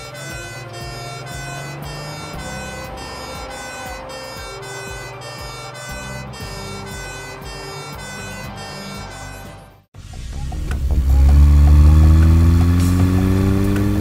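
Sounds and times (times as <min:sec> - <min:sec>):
cartoon ambulance siren: 0:00.0 - 0:09.6
background music with steady beat: 0:00.0 - 0:14.0.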